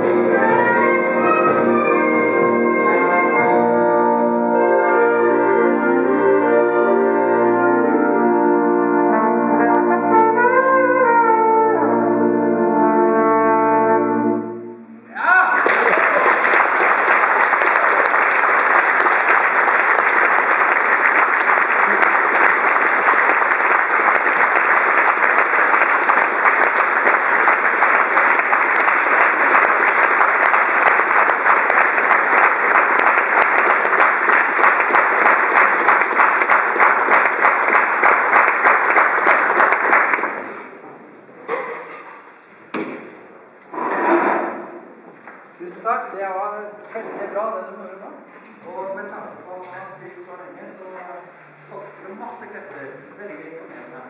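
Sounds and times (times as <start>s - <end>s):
audience applauding: 15.4s - 40.8s.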